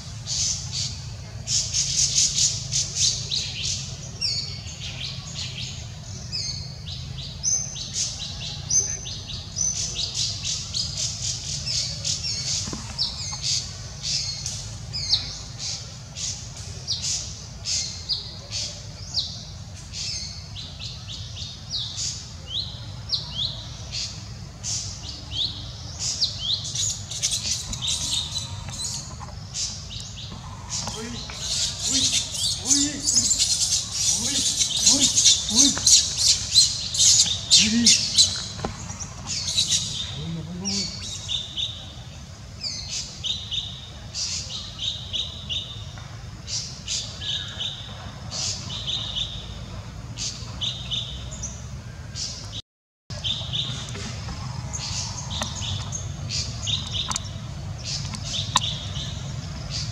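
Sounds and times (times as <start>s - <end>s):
high-pitched chirping calls: 25.6s - 38.7s.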